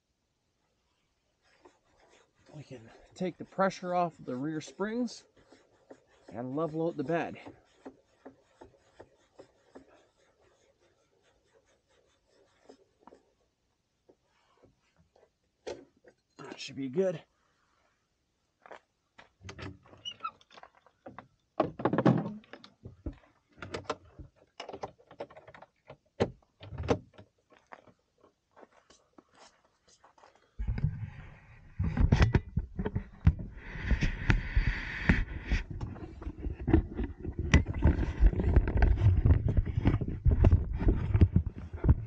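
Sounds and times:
camera handling rumble: 30.6s - 42.0s.

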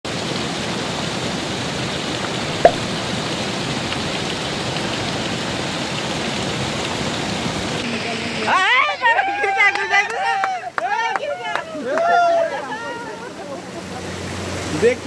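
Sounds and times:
waterfall splashing over rocks: 0.1s - 15.0s
short sharp blip: 2.6s - 3.0s.

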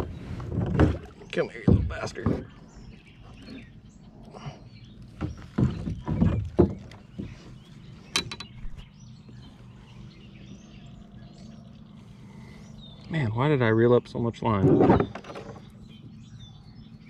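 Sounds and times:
fish thumping on kayak: 0.0s - 3.1s, 5.0s - 7.6s.

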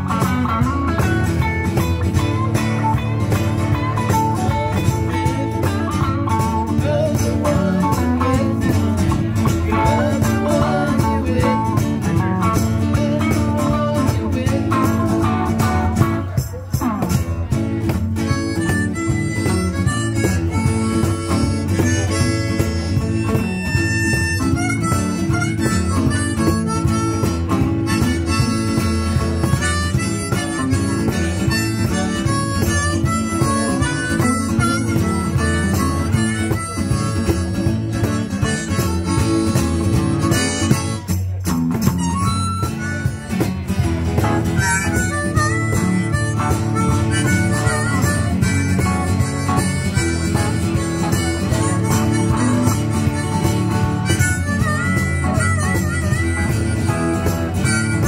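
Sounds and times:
strummed acoustic guitars: 0.0s - 58.0s
harmonica solo: 18.2s - 58.0s.

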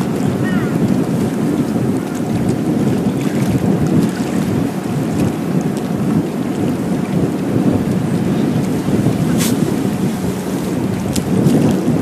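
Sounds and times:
sea wash: 0.0s - 12.0s
wind buffeting microphone: 0.0s - 12.0s
fishing rod cast swish: 9.3s - 9.6s.

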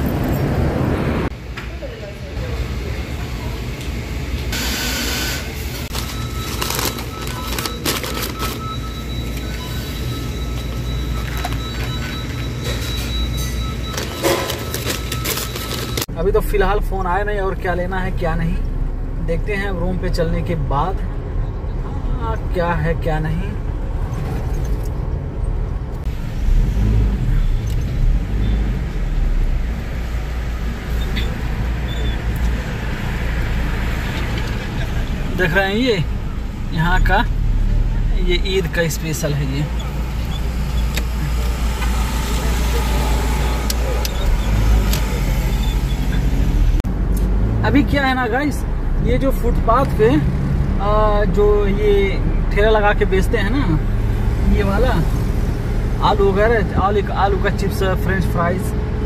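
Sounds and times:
car engine and tyres rumbling: 0.0s - 59.0s
paper bag rustling: 5.8s - 8.8s, 14.0s - 16.1s.

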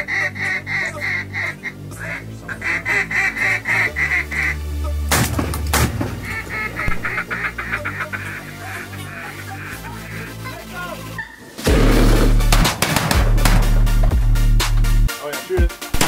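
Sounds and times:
duck quacking: 0.0s - 4.9s, 5.8s - 12.4s
shotgun shots: 5.1s - 6.3s, 11.6s - 13.8s
music with low beat: 11.7s - 16.0s.

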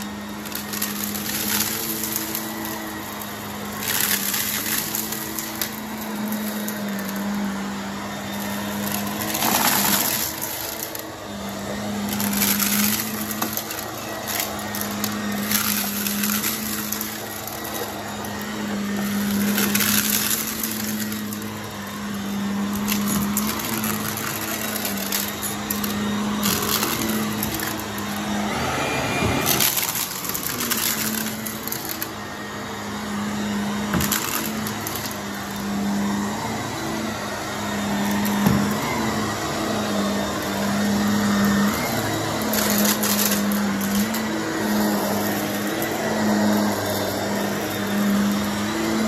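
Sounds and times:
vacuum cleaner motor hum: 0.0s - 49.0s
debris crackling and rattling: 22.6s - 28.2s, 29.4s - 32.1s.

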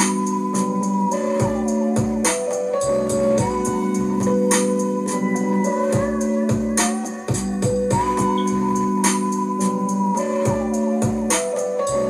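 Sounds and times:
held chords music: 0.0s - 12.0s
steady beat: 0.0s - 12.0s.

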